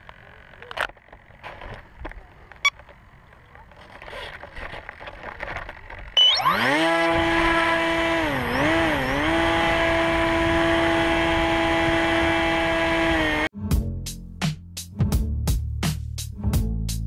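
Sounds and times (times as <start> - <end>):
electric motor and propeller whine: 0.0 - 13.5.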